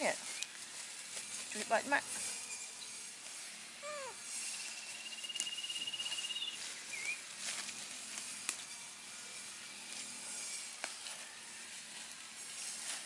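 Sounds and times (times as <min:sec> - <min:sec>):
leaves rustling: 0:00.0 - 0:13.0
high trilling call: 0:03.8 - 0:07.3.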